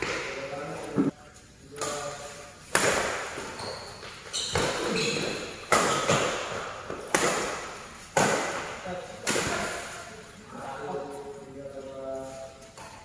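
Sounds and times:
racket hitting shuttlecock: 1.8 - 10.0.

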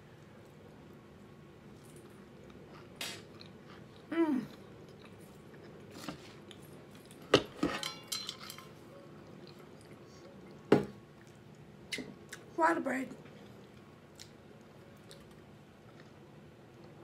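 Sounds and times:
person chewing: 0.2 - 7.2, 9.2 - 12.5, 13.4 - 17.0
fork clinking in foil tin: 7.6 - 8.7.

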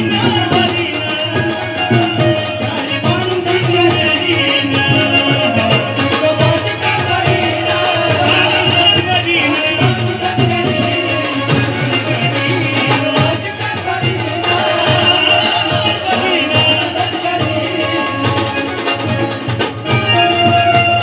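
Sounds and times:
keyboard melody: 0.0 - 21.0
man singing: 0.0 - 21.0.

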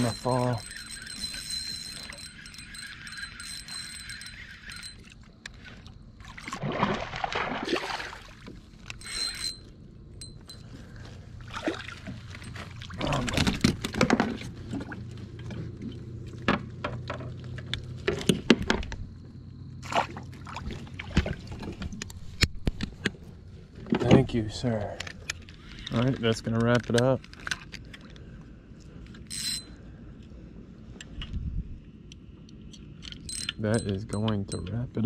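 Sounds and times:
water splashing beside kayak: 5.0 - 8.8, 19.8 - 22.4
clicks and knocks on hull: 13.2 - 15.6.

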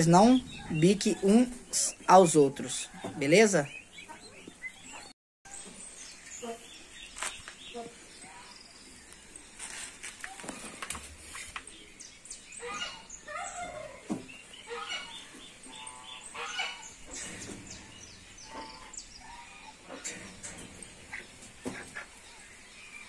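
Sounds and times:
birds chirping: 0.0 - 23.0
louder lower bird calls: 12.3 - 23.0.

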